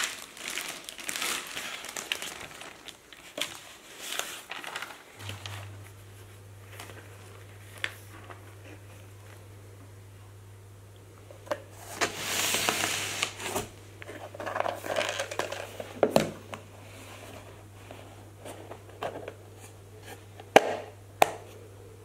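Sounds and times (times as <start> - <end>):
plastic packaging crinkling: 0.0 - 9.4, 11.4 - 16.1
steady low hum: 5.1 - 22.0.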